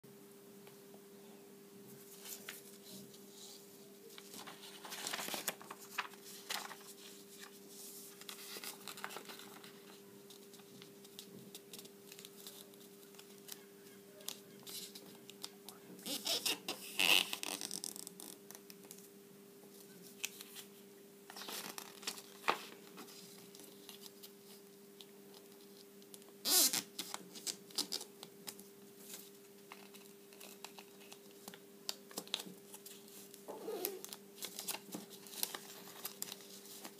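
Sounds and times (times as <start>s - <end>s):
faint steady hum: 0.1s - 36.9s
paper crinkling and rustling: 2.0s - 3.5s, 4.1s - 15.5s, 19.8s - 24.6s, 26.7s - 36.9s.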